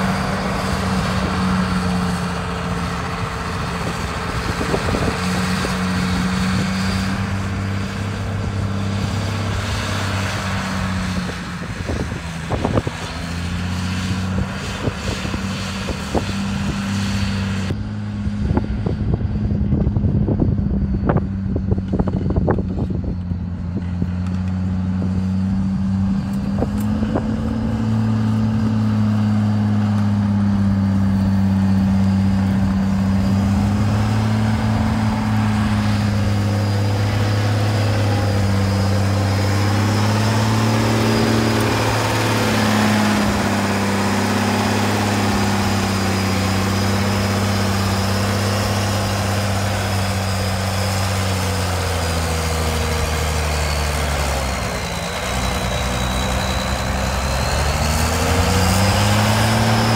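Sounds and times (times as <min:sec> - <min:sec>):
grader engine running: 0:00.0 - 0:59.9.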